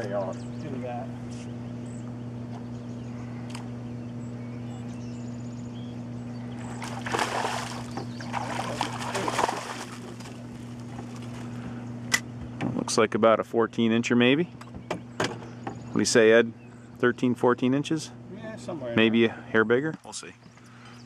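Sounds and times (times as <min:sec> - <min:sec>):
low hum: 0:00.0 - 0:21.0
fish splashing at the surface: 0:06.7 - 0:11.4.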